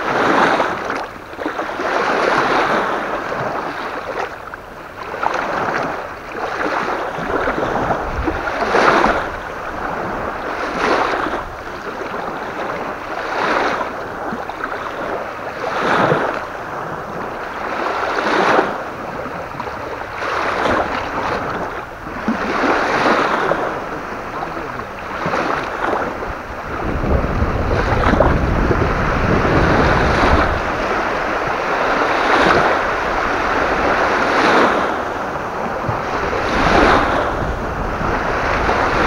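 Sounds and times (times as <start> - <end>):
strong wind: 0.0 - 39.0
waves splashing on shore: 0.0 - 39.0.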